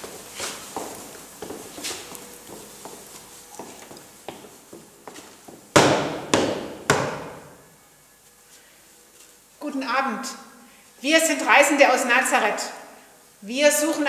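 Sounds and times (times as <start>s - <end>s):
light footsteps: 0.0s - 7.2s
knocking on wooden door: 5.8s - 7.4s.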